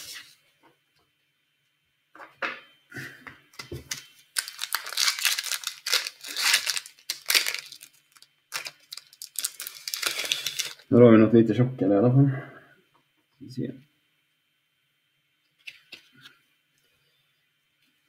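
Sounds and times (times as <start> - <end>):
wrapper crinkling and tearing: 3.9 - 10.9.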